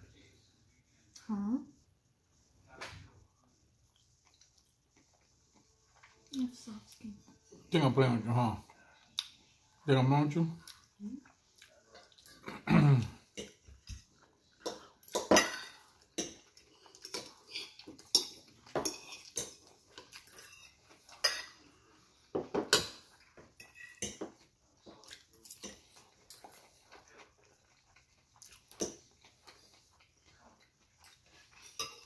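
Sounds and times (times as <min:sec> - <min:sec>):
fork scraping ceramic plate: 0:17.1 - 0:21.7, 0:23.6 - 0:24.3.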